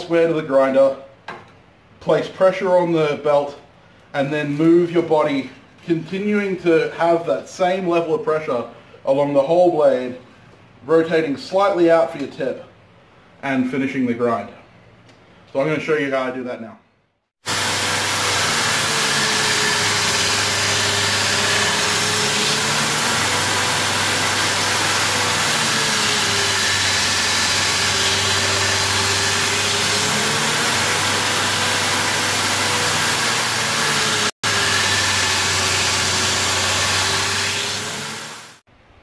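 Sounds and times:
belt grinder grinding steel: 0:17.4 - 0:38.6.

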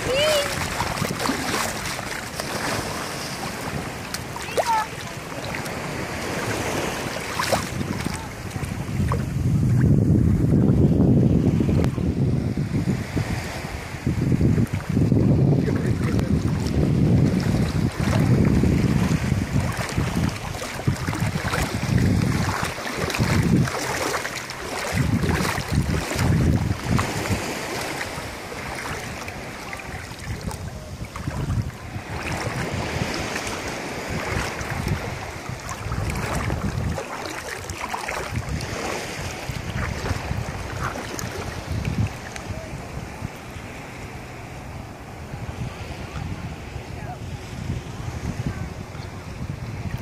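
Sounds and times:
sea water lapping: 0:00.0 - 0:50.0
wind buffeting microphone: 0:00.0 - 0:50.0.

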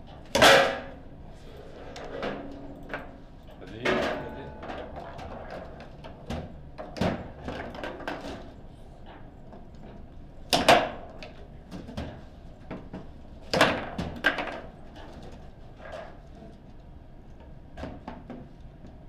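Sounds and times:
foosball rods banging: 0:03.8 - 0:08.5.

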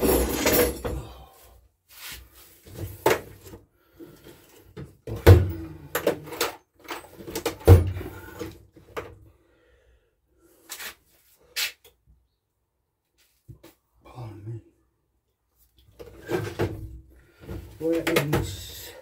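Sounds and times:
tools knocking and clattering: 0:00.0 - 0:01.1, 0:04.8 - 0:08.2.

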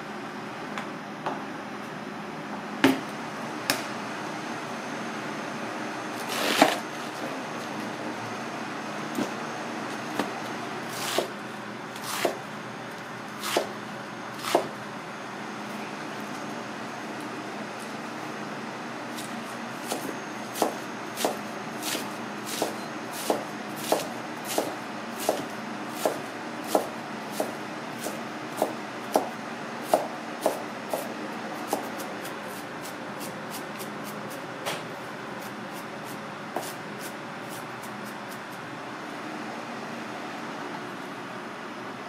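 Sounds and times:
steady background hum: 0:00.0 - 0:42.0
knife chopping on cutting board: 0:11.0 - 0:11.3, 0:12.0 - 0:12.4, 0:13.4 - 0:13.7, 0:14.4 - 0:14.7, 0:19.8 - 0:31.1, 0:31.7 - 0:32.1, 0:36.6 - 0:37.1.

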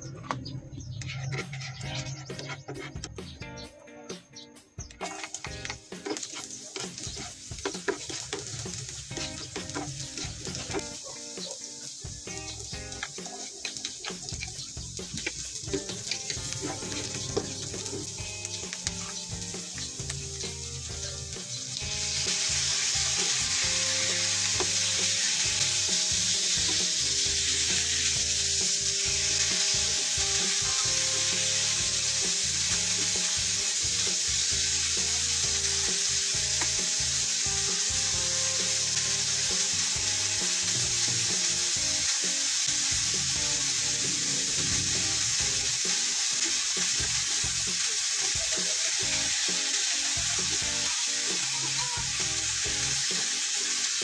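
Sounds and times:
spatula stirring in a pan: 0:01.0 - 0:03.2, 0:05.0 - 0:20.5, 0:21.8 - 0:43.4
meat sizzling in a frying pan: 0:05.0 - 0:54.0.

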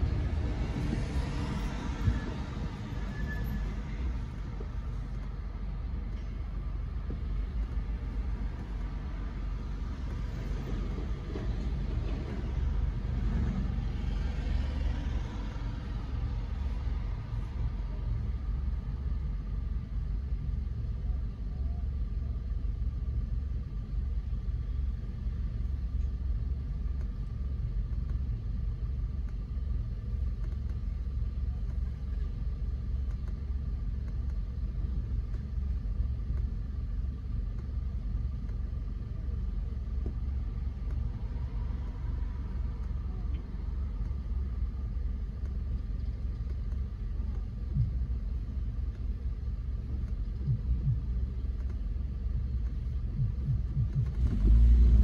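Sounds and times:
car engine and road noise: 0:00.0 - 0:55.0
faint steady whine: 0:12.5 - 0:55.0.

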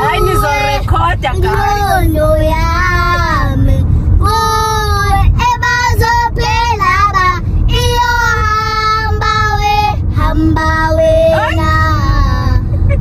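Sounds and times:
girls singing: 0:00.0 - 0:02.9
car road rumble: 0:00.0 - 0:13.0.

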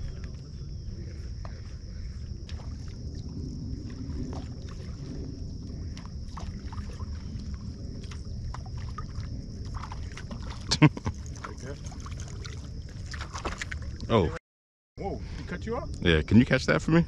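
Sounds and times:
wind rumble: 0:00.0 - 0:14.2
water lapping: 0:00.9 - 0:14.4.

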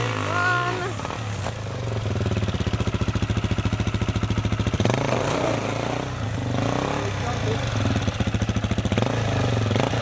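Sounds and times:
dirt bike engine chugging: 0:00.0 - 0:10.0.

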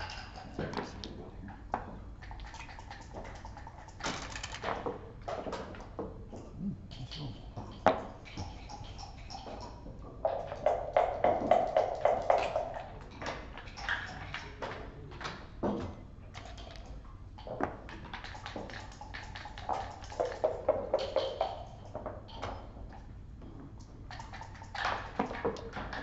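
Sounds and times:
clicks of checkers and dice: 0:00.0 - 0:05.9.

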